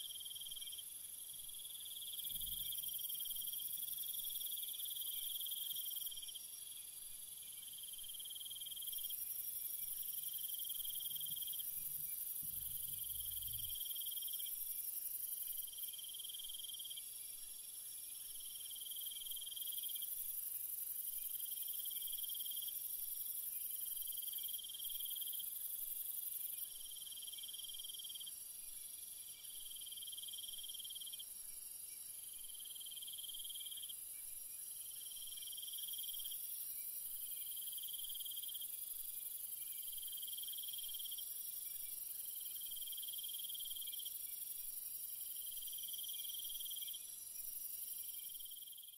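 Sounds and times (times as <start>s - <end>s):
high-pitched insect hiss: 7.8s - 17.0s, 18.2s - 48.9s
cricket trilling: 10.0s - 14.6s.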